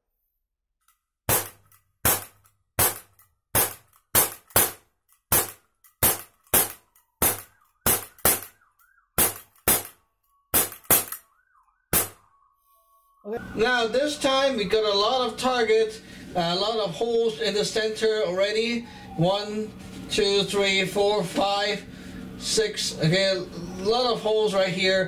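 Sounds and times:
bb pistol shots snapping: 1.3 - 8.6, 9.2 - 11.2, 11.9 - 12.2.

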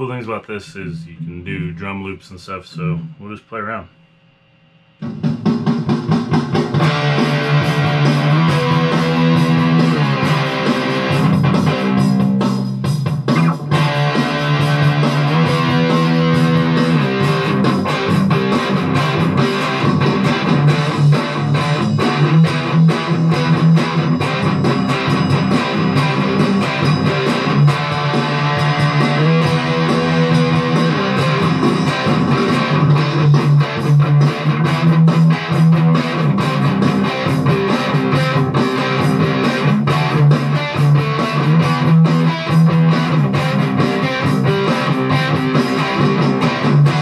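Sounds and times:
electric guitar playing: 5.0 - 47.0.

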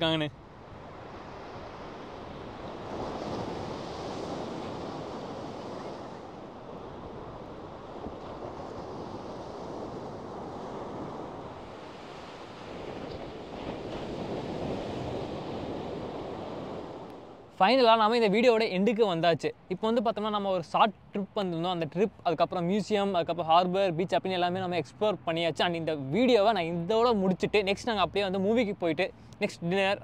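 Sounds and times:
ocean surf washing onto beach: 0.0 - 18.3.

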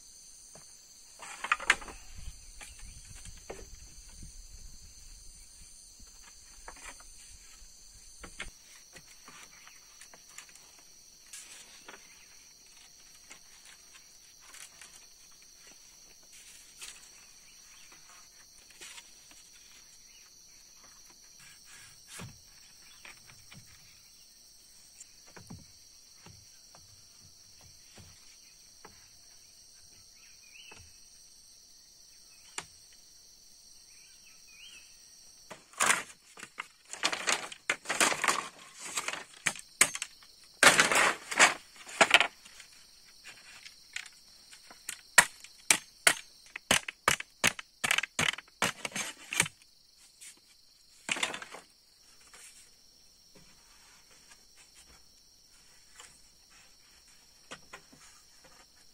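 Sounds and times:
bamboo pieces knocking together: 1.2 - 3.7, 35.5 - 42.6, 43.3 - 49.5, 51.1 - 51.6.

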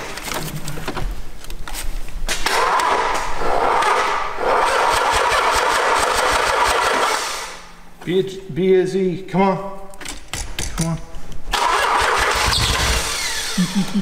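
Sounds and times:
starter cranking engine: 4.6 - 7.3, 11.5 - 13.6.

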